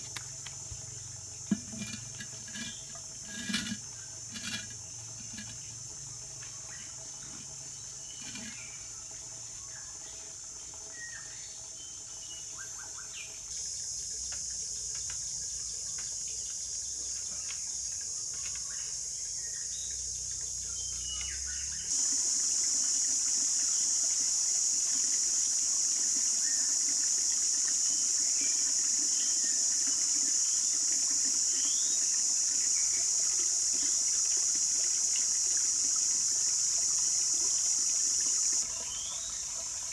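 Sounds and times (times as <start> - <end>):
high-pitched hiss: 17.2 - 39.4.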